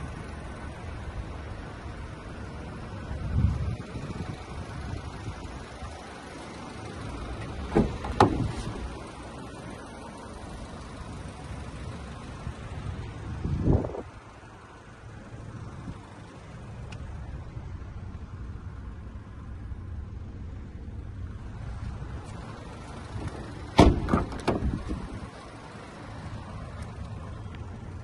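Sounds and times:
steady low rumble: 0.0 - 28.0
car door thumps and clunks: 7.4 - 9.0, 23.1 - 25.2.

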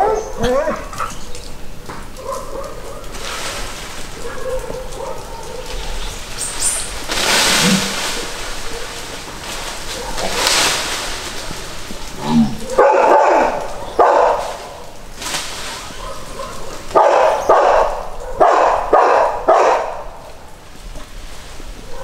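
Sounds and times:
dog barking: 0.0 - 1.0, 2.2 - 3.2, 4.2 - 6.0, 9.9 - 10.4, 12.6 - 14.8, 15.8 - 20.2.

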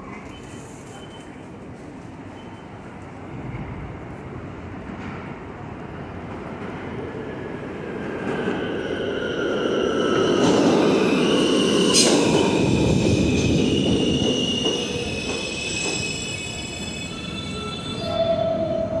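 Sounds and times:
subway train braking: 0.0 - 19.0
high-pitched brake squealing: 11.0 - 19.0.

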